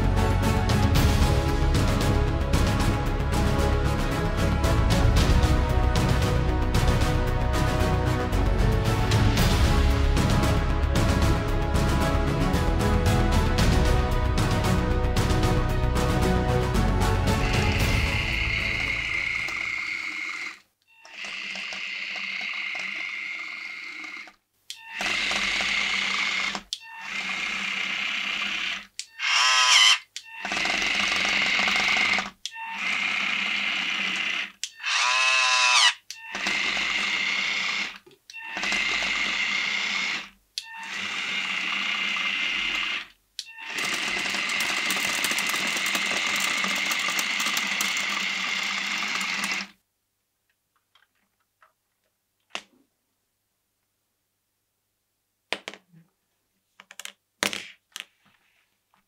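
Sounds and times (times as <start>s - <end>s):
electric toy motors whining: 17.4s - 49.8s.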